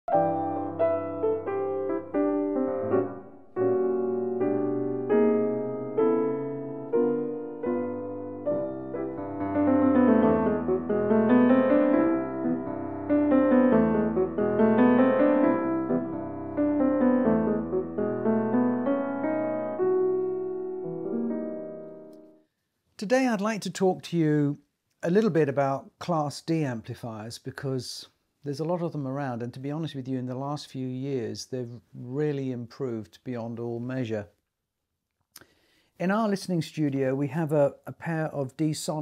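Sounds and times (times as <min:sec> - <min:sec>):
piano chords and arpeggios: 0:00.1 - 0:22.4.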